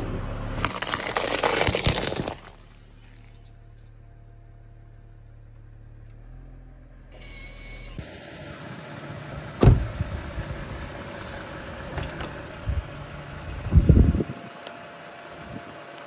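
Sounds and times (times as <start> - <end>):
tyres on gravel: 0.0 - 5.3
car engine: 0.0 - 16.0
low rumbling: 9.4 - 14.5.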